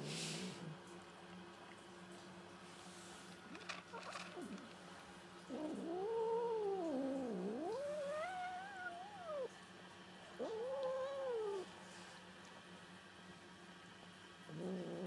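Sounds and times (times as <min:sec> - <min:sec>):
cat making angry calls: 0:07.4 - 0:09.5.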